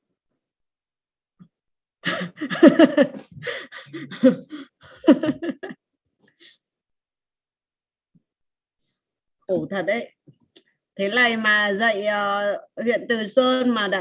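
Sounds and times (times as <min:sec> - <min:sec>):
woman laughing: 0:02.0 - 0:05.8.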